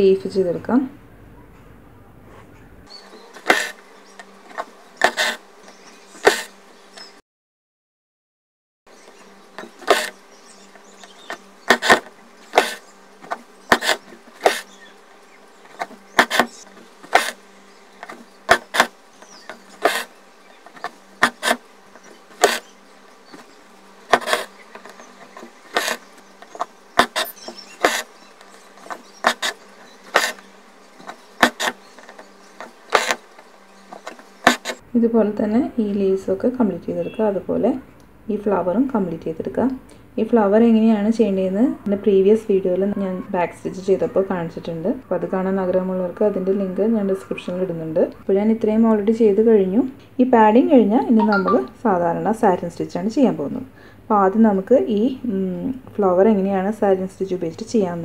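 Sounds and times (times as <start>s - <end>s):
faint buzzing hum: 8.9s - 58.0s
needle ticking through fabric: 9.6s - 10.1s, 11.0s - 14.7s, 15.8s - 17.4s, 18.0s - 20.1s, 24.1s - 28.1s.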